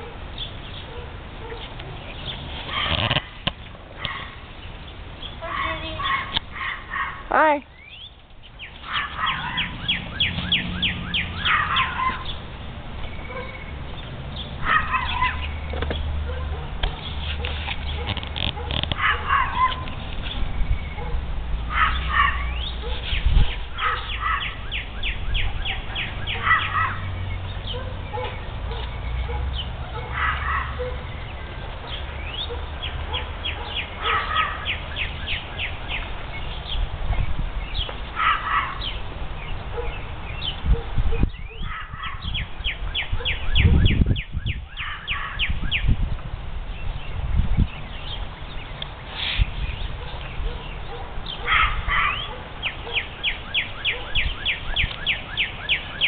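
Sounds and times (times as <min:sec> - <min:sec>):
songbirds singing: 0:00.0 - 0:56.0
harsh rough bird calls: 0:00.4 - 0:16.1, 0:16.9 - 0:36.8.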